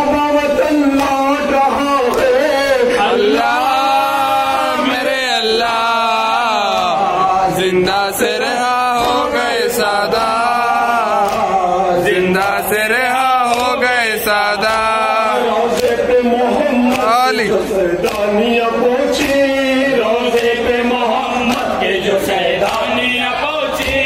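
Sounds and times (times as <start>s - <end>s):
men chanting a lament: 0.0s - 24.0s
hands slapping chests: 8.9s - 18.4s, 19.2s - 20.7s, 21.3s - 23.0s.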